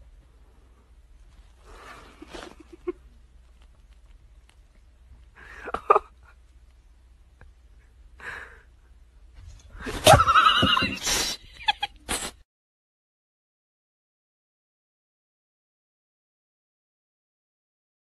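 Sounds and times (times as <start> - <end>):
horse whinnying: 10.0 - 11.0.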